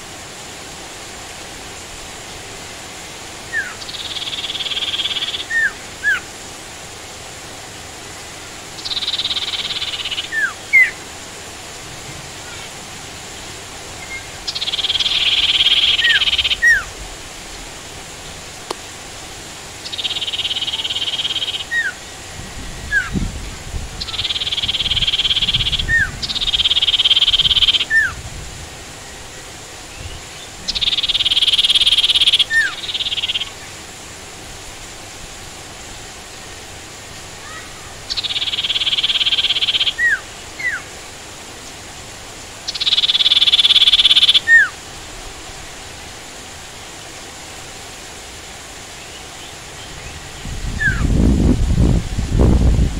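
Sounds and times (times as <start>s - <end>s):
rain hiss: 0.0s - 52.9s
bird buzzy trills: 2.3s - 6.5s, 7.6s - 18.5s, 19.6s - 34.0s, 36.0s - 41.2s, 42.4s - 44.9s, 48.7s - 51.6s.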